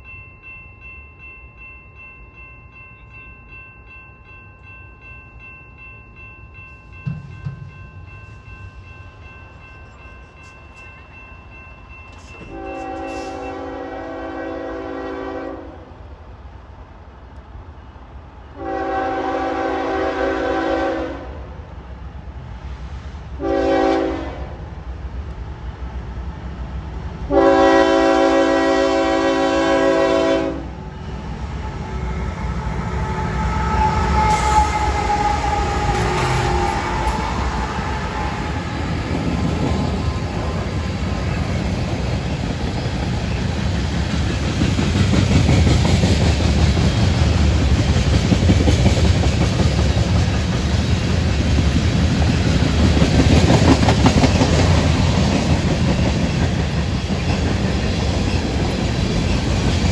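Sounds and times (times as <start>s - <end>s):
train wheels clattering on rails: 6.7s - 11.1s, 11.8s - 14.0s, 31.0s - 59.9s
train air horn: 12.2s - 15.9s, 18.6s - 21.5s, 23.4s - 24.6s, 27.3s - 30.7s, 31.7s - 38.8s.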